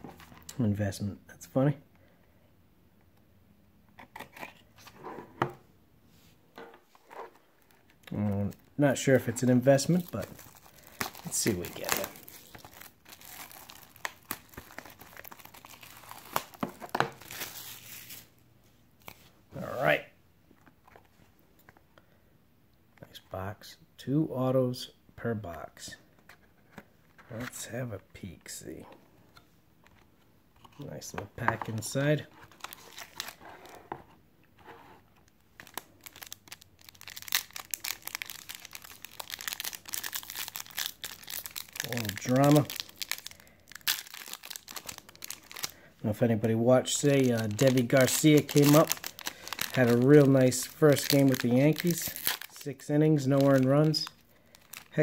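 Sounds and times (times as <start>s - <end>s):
plastic wrap crinkling: 7.4s - 18.4s, 32.4s - 33.8s, 35.2s - 45.9s, 46.8s - 55.0s.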